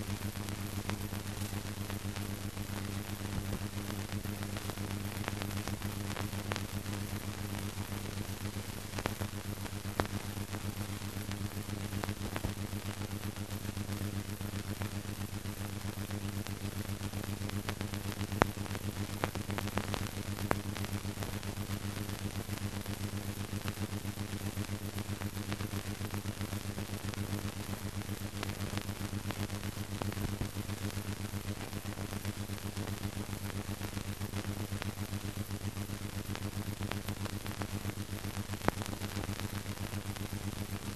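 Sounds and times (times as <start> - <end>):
low mains hum: 0.0 - 40.9.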